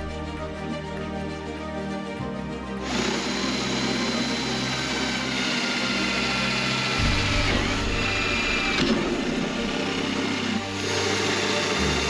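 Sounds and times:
cordless drill whining into wood: 0:02.8 - 0:12.0.

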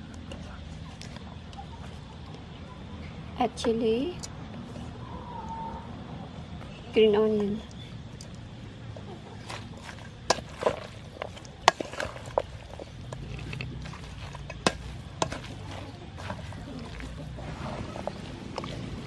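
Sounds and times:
wooden spoon tossing salad: 0:09.0 - 0:19.0
spoon clacking on steel bowl: 0:09.8 - 0:17.4.

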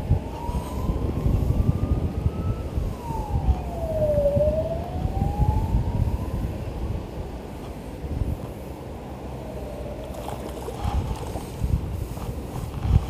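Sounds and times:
siren wailing: 0:00.0 - 0:07.0.

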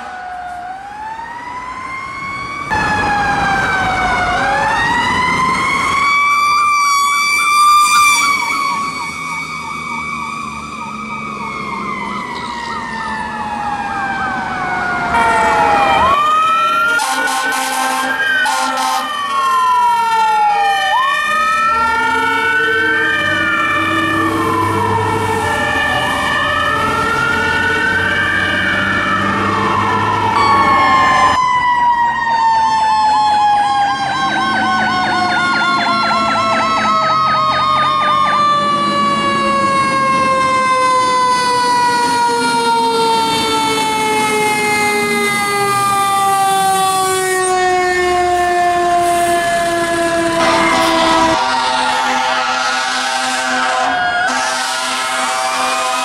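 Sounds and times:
mechanical siren winding down: 0:00.0 - 0:52.9
electronic siren wail: 0:00.0 - 0:56.0
fast electronic siren yelp: 0:00.0 - 0:56.0
two-tone horn: 0:15.2 - 0:15.6, 0:16.9 - 0:19.2, 0:50.4 - 0:56.0.

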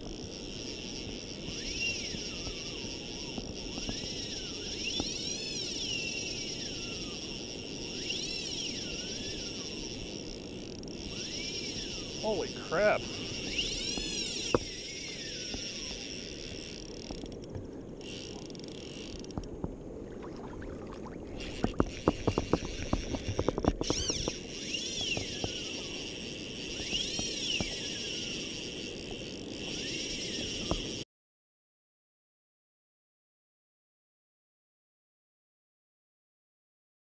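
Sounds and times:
fishing reel drag whining: 0:00.0 - 0:19.5, 0:20.2 - 0:31.0
wind and water rushing: 0:19.7 - 0:24.2.

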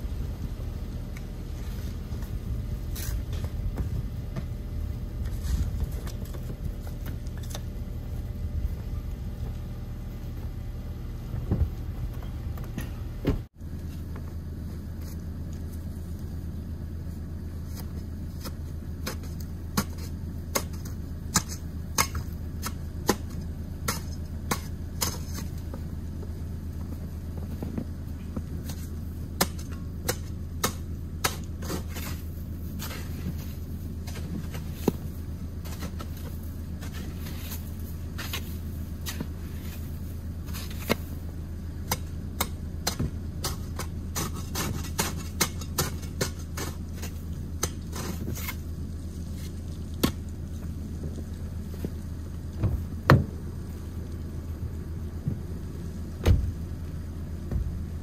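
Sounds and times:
low rumble: 0:00.0 - 0:19.7
snow shovel scraping: 0:01.5 - 0:04.0, 0:04.7 - 0:09.6, 0:31.3 - 0:41.2, 0:43.5 - 0:49.6.

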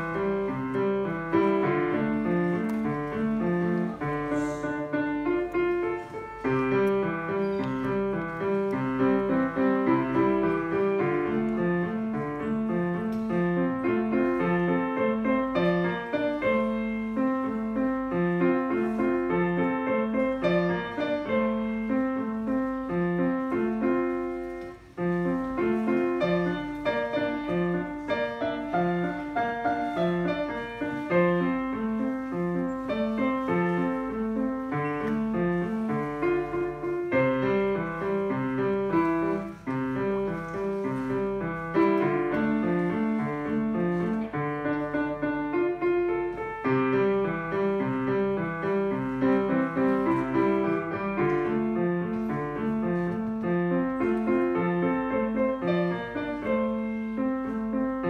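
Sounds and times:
solo grand piano: 0:00.0 - 0:58.0.

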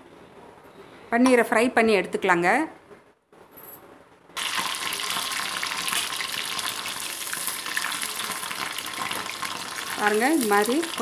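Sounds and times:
cheese cubes sizzling in oil: 0:04.4 - 0:11.0.

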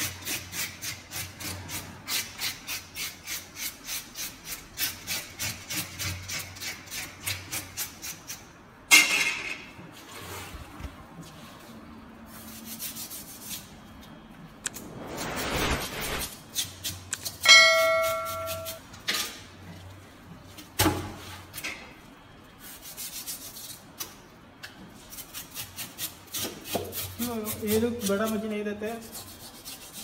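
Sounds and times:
knife blades scraping together: 0:14.6 - 0:19.3
metallic clang ringing: 0:17.4 - 0:18.8.

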